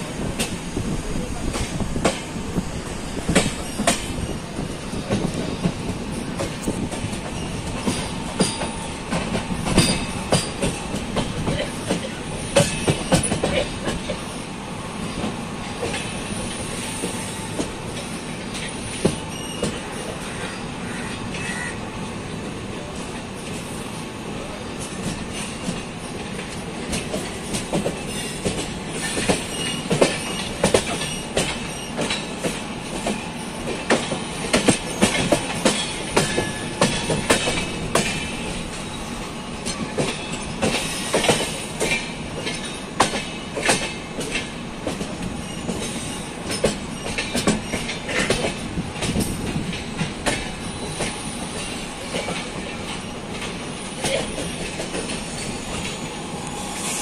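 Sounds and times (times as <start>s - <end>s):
train wheels rumbling on rails: 0.0s - 57.0s
wheels clacking over rail joints: 3.2s - 14.3s, 24.8s - 38.9s, 39.6s - 56.0s.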